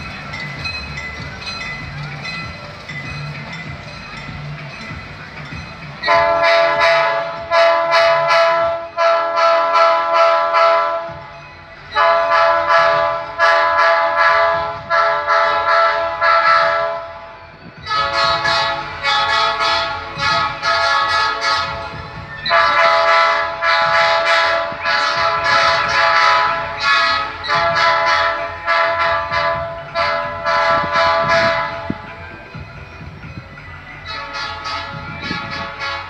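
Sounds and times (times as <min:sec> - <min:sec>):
locomotive air horn toots: 0:06.0 - 0:11.2, 0:11.9 - 0:17.2, 0:17.9 - 0:32.2, 0:34.0 - 0:36.0.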